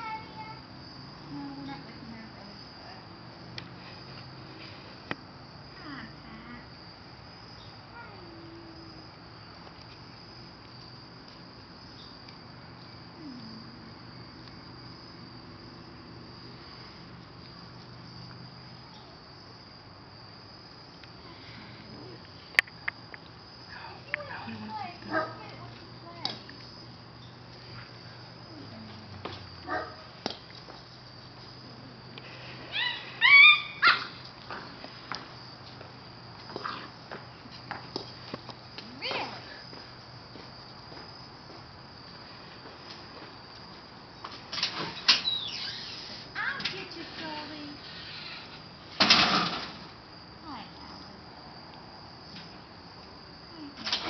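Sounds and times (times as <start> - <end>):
crickets chirring: 0.0 - 54.0
short falling calls: 32.6 - 34.2
puppy yelping: 32.7 - 34.2.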